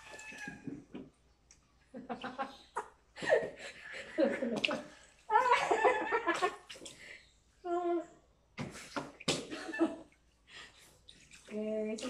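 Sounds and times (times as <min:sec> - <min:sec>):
water splashing in tub: 0:10.8 - 0:12.0.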